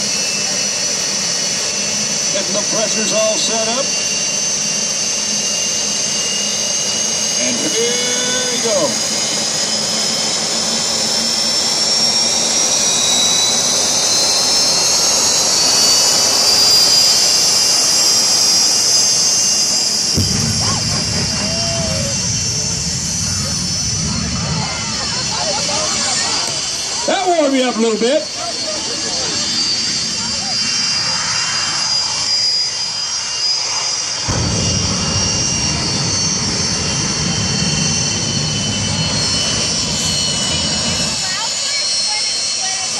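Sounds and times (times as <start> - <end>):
turbine engine spooling up: 0.0 - 42.9
loud deep rumble: 13.2 - 27.0, 34.2 - 42.4.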